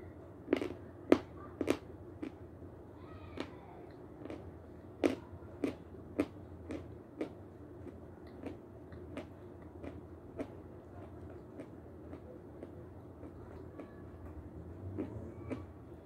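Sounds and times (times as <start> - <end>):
chalk crunching being chewed: 5.0 - 13.9.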